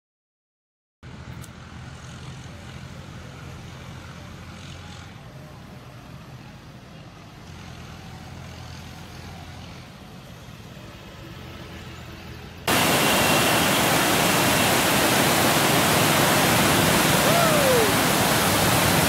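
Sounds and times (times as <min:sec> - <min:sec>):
motorcycle passing by: 0:01.1 - 0:06.3, 0:07.2 - 0:19.0
water rushing through sluice gate: 0:12.7 - 0:19.0.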